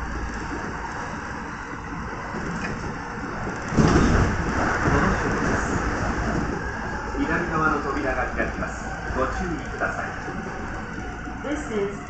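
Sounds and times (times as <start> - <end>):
electric train running noise: 0.0 - 12.0
passing train rush and rumble: 0.0 - 12.0.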